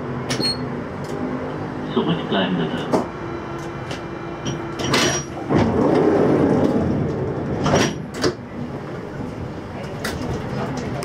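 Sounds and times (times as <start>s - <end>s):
train doors sliding shut: 2.7s - 9.0s.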